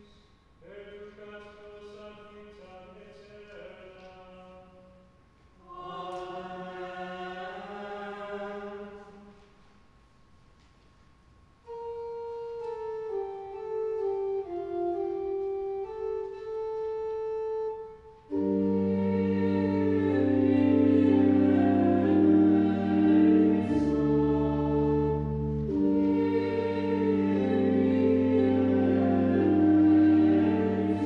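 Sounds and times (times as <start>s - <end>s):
church organ: 0.6s - 5.0s, 11.6s - 31.0s
voices chanting: 18.4s - 31.0s.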